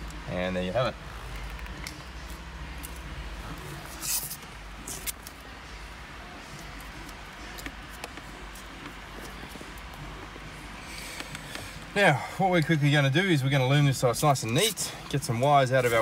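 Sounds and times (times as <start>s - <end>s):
low steady hum: 0.0s - 16.0s
electrical tape tearing: 3.9s - 5.4s.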